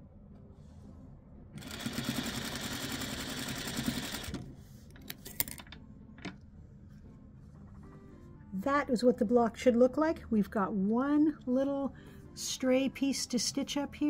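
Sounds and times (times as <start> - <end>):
sewing machine running: 1.6 - 4.4.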